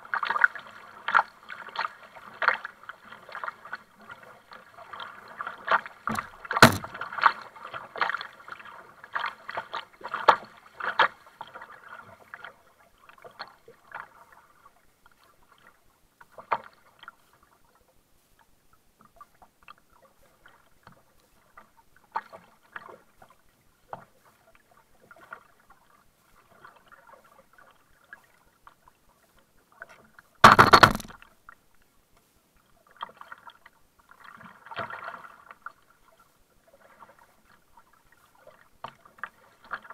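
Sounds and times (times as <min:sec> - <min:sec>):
paddle blades splashing in water: 0:00.2 - 0:12.6, 0:32.9 - 0:39.9
water slapping against hull: 0:06.1 - 0:07.3.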